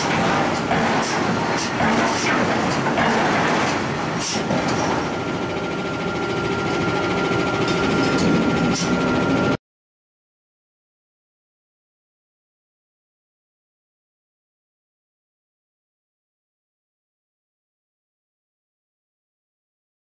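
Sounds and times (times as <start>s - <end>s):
machinery rumbling: 0.0s - 9.6s
high whine: 5.0s - 9.6s.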